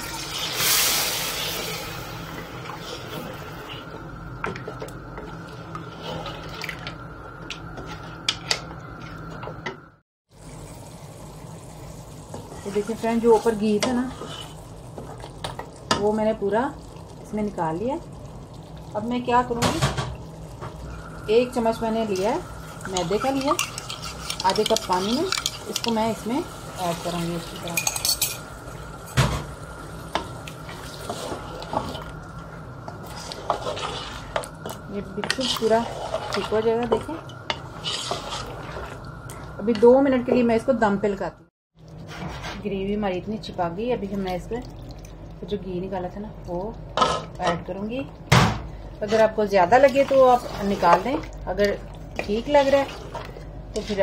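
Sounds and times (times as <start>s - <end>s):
wooden spatula scraping steel pot: 12.5s - 14.6s, 22.8s - 26.1s, 32.9s - 39.0s, 49.0s - 51.3s, 52.2s - 54.0s.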